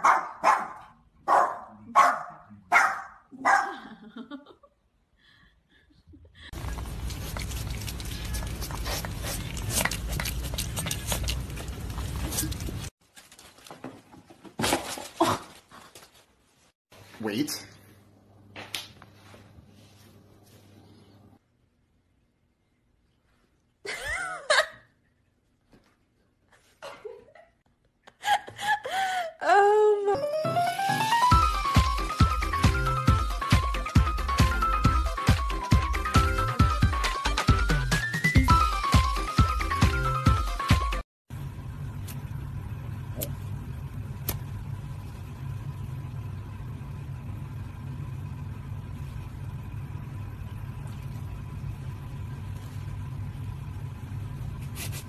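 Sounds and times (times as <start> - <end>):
person laughing high-pitched: 3.4 - 4.7
low hum: 41.3 - 55.0.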